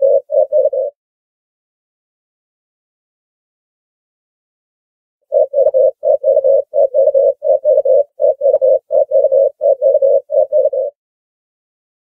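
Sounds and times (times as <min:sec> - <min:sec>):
dove cooing: 0:00.0 - 0:01.0, 0:05.3 - 0:11.0.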